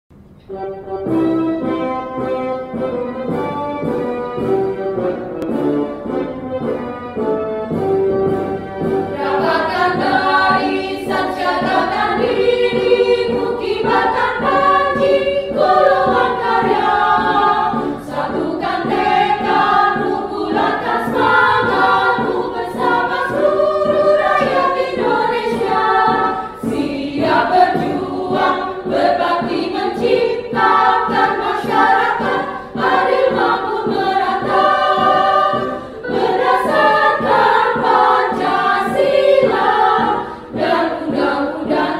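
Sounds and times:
women's choir singing: 9.1s - 41.9s.

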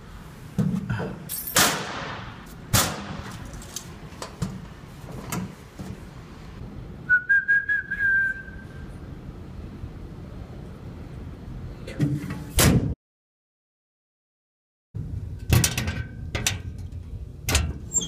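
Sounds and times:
knocks and clatter in metal locker: 15.4s - 16.7s, 17.5s - 18.0s.

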